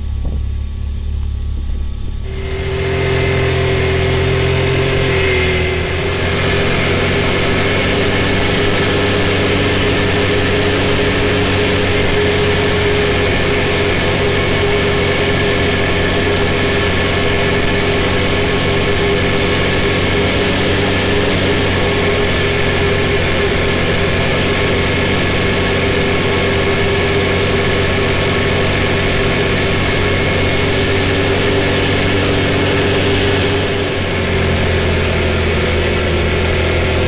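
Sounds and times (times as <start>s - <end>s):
wind noise: 0.0s - 0.6s
engine droning: 0.0s - 37.0s
road noise: 0.0s - 37.0s.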